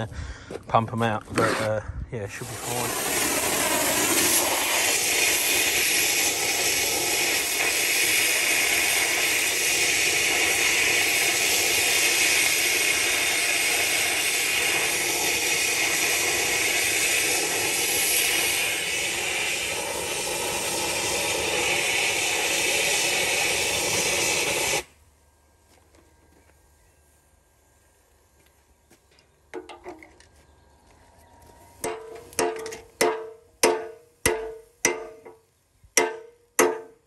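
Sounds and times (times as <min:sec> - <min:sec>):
cutting rod burning hiss: 0:01.4 - 0:25.0.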